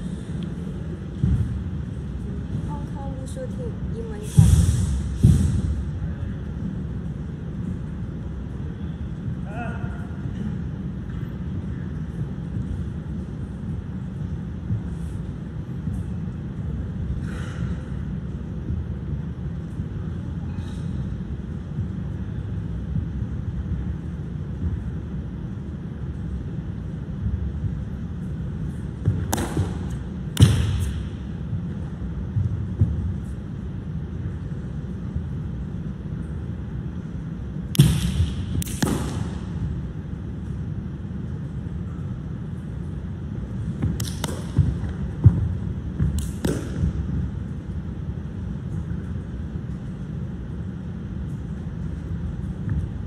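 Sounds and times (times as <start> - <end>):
low room noise rumble: 0.0 - 53.0
sharp smacks ringing in a hall: 29.0 - 31.3, 37.6 - 39.8, 43.8 - 47.1
sharp slaps: 29.2 - 31.2, 37.7 - 39.6, 43.8 - 45.0, 46.0 - 47.0.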